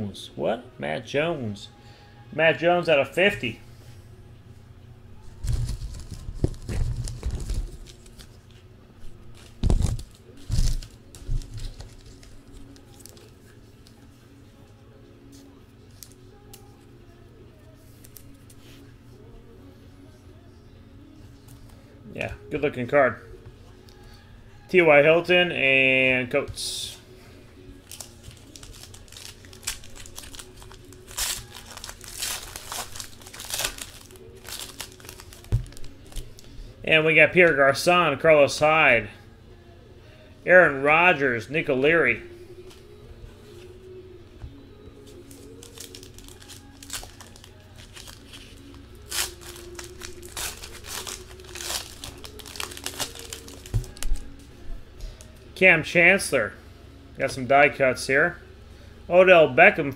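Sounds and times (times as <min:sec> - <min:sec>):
card wrappers tearing and crinkling: 0:05.3 - 0:08.5, 0:09.3 - 0:14.0, 0:27.8 - 0:36.6, 0:45.2 - 0:54.4.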